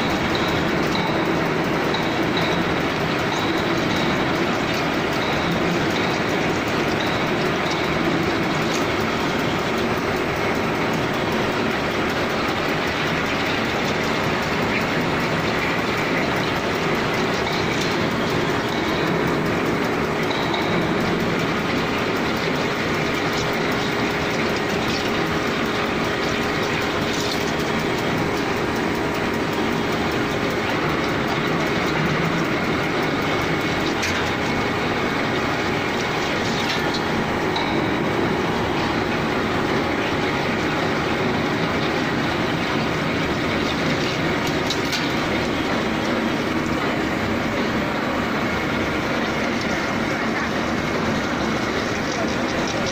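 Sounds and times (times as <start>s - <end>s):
drilling machine running: 0.0s - 52.9s.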